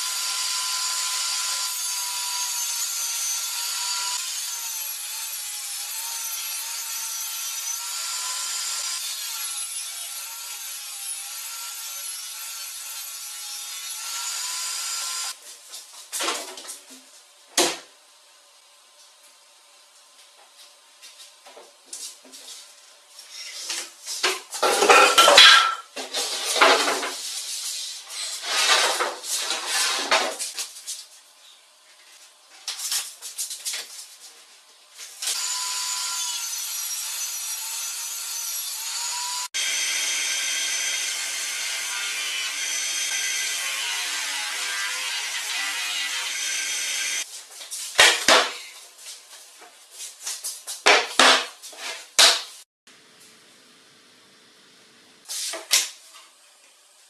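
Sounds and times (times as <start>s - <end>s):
power tool running: 0.0s - 15.4s, 35.3s - 47.3s
plywood scraping on workbench: 28.2s - 30.4s.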